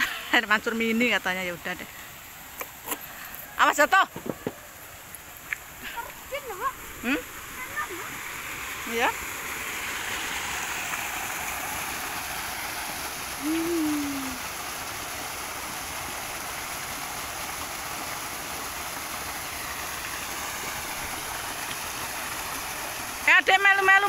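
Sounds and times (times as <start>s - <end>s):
low humming voice: 13.4s - 14.4s.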